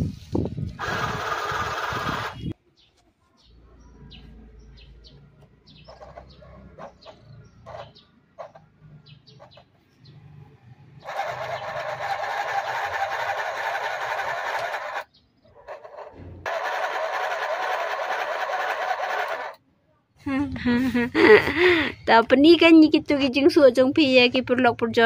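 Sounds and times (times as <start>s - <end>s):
sewing machine running: 0.8s - 2.5s, 11.0s - 19.6s
birds chirping: 1.5s - 16.5s.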